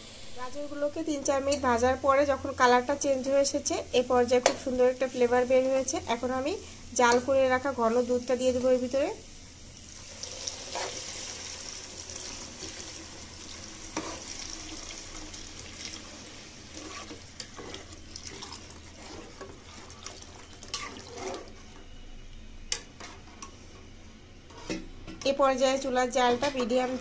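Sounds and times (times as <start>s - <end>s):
milk pouring into pot: 10.0s - 16.3s, 18.1s - 21.4s.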